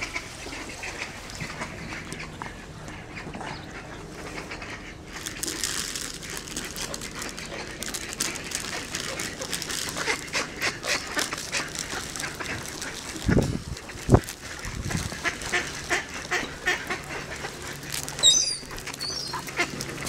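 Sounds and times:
popcorn clicks and rustles: 5.1 - 20.0.

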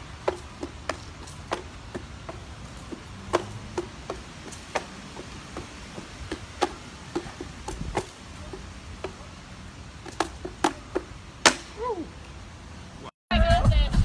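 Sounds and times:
wooden cigar boxes clacking: 0.0 - 9.3, 10.0 - 11.8.

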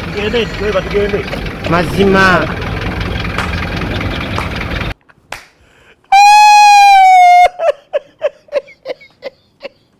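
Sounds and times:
minibus engine idling: 0.0 - 5.0.

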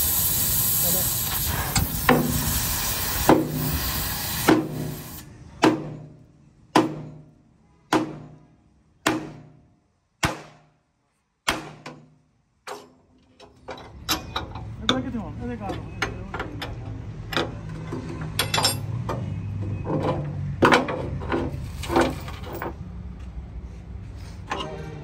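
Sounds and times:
hiss: 0.0 - 5.3.

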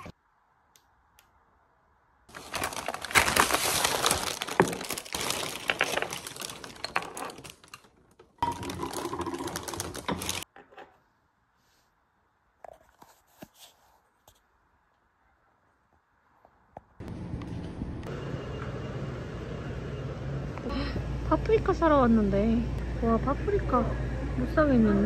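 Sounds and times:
plastic mailer bags crinkling: 2.3 - 10.4.

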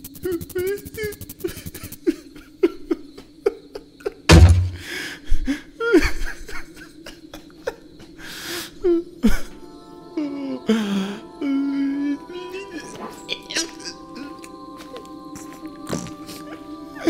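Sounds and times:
loud heavy thud: 4.3 - 4.9
cartoon character sobbing: 10.2 - 14.4.

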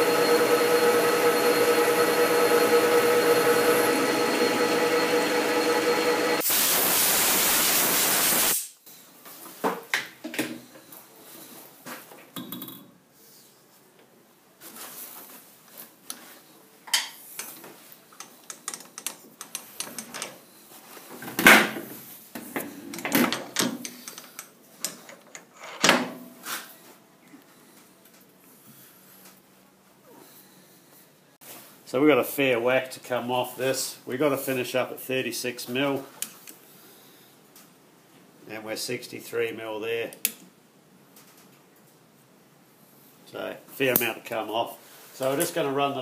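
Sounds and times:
loud even hiss: 6.4 - 8.8.

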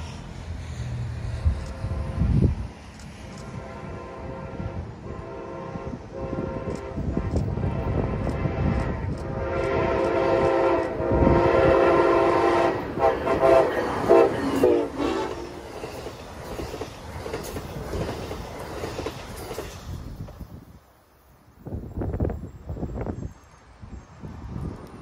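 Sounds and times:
train cars rushing past: 0.0 - 25.0
train horn blasts: 1.4 - 2.6, 3.2 - 15.8
wheels clacking over rail joints: 12.2 - 20.6.

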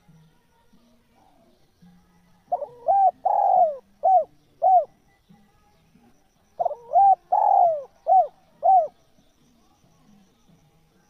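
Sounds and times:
dove cooing: 2.4 - 5.0, 6.6 - 9.0.

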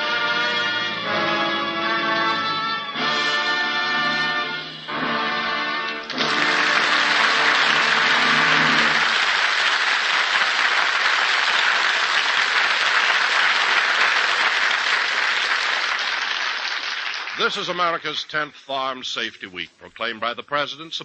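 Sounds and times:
orchestra holding a chord: 0.0 - 9.2
audience applauding: 6.0 - 18.4.

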